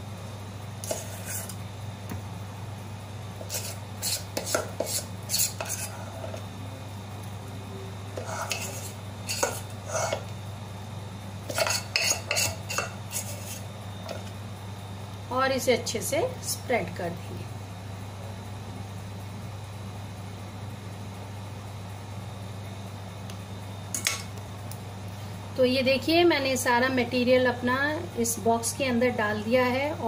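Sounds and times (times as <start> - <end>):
steady low hum: 0.0 - 30.0
spoon scraping and clinking on steel: 8.2 - 10.2, 11.5 - 13.6.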